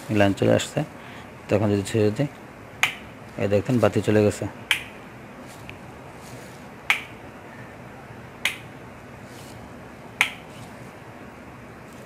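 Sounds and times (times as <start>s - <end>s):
rocker switches clicking: 2.8s - 3.1s, 4.7s - 5.0s, 6.9s - 7.2s, 8.4s - 8.7s, 10.2s - 10.5s.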